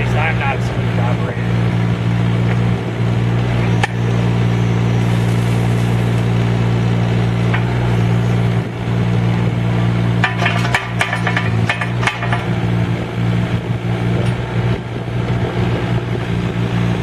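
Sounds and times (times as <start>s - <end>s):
diesel excavator engine running: 0.0s - 17.0s
sharp metal clanks and knocks: 10.2s - 12.6s.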